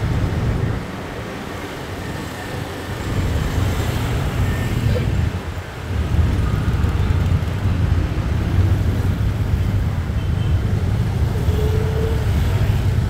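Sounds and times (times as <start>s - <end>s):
vehicle engine and road rumble: 0.0s - 13.0s.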